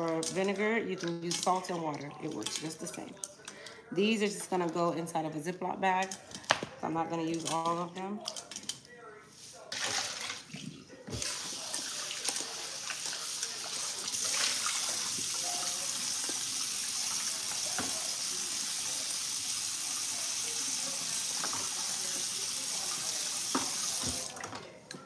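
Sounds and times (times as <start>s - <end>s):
tap running into sink: 14.2s - 18.3s, 21.2s - 24.5s.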